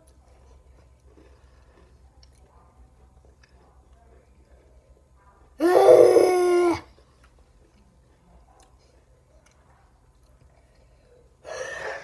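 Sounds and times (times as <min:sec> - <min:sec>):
chewing crunchy chips: 0:00.0 - 0:04.0.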